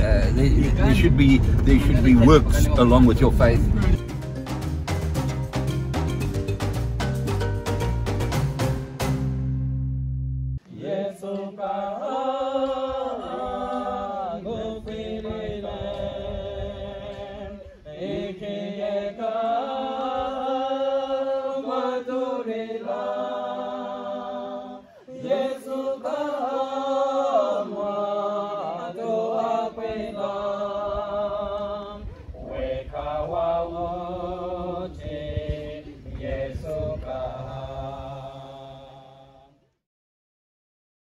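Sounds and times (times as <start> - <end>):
group of people singing: 10.6 - 39.7.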